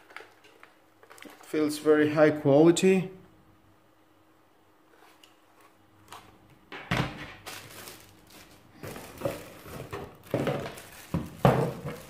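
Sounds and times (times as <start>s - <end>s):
plastic wrapping crinkling: 0.0s - 1.7s, 7.3s - 12.0s
cardboard box rustling: 7.7s - 12.0s.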